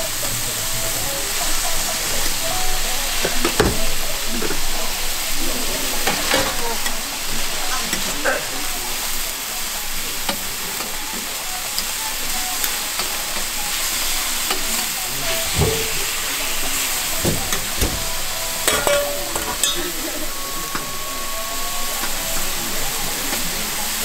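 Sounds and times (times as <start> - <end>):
steak sizzling on a griddle: 0.0 - 24.0
cooking tools knocking and clinking: 17.2 - 20.1.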